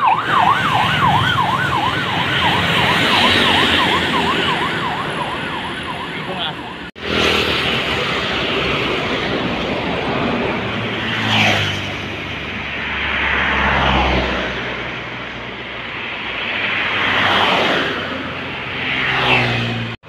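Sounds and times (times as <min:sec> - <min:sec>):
road vehicles passing: 0:00.0 - 0:20.0
truck passing close: 0:00.0 - 0:20.0.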